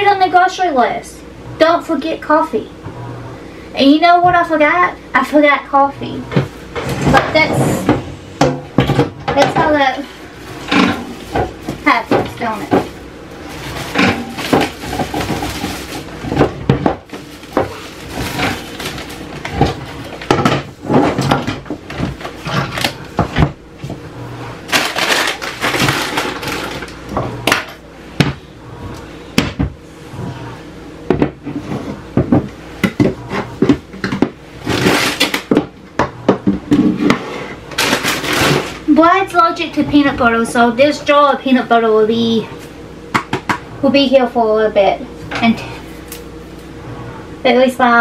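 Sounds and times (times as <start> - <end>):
containers knocking and clunking: 6.3 - 10.0, 10.6 - 24.0, 31.0 - 34.4, 35.2 - 37.2
plastic bags rustling: 9.6 - 23.2, 24.6 - 27.1, 37.7 - 38.9.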